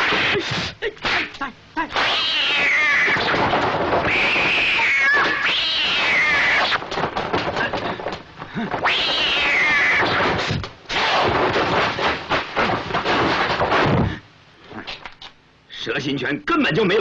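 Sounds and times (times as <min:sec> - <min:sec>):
cats yowling: 0:02.0 - 0:03.4, 0:04.0 - 0:06.8, 0:08.8 - 0:10.4.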